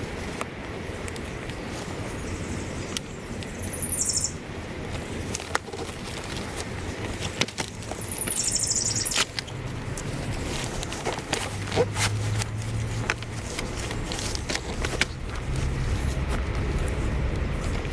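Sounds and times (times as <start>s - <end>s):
bootlaces rasping through hooks: 9.0s - 17.9s.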